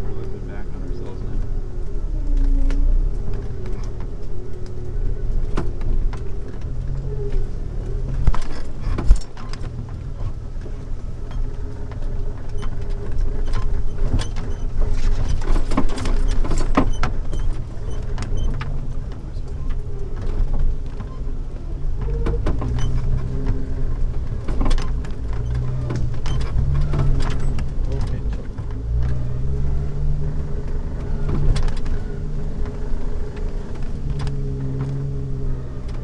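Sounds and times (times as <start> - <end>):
low engine drone: 0.0 - 36.0
knocks and rattles: 7.9 - 21.2, 21.8 - 36.0.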